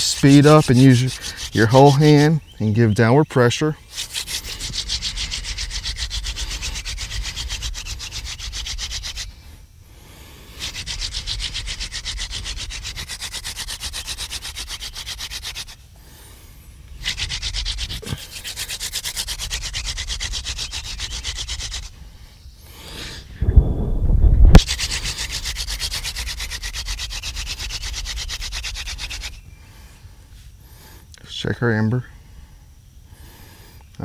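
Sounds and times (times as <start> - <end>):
wooden spindle grinding on board: 0.0 - 2.4, 3.9 - 9.4, 10.5 - 15.8, 17.0 - 22.0, 24.5 - 29.4.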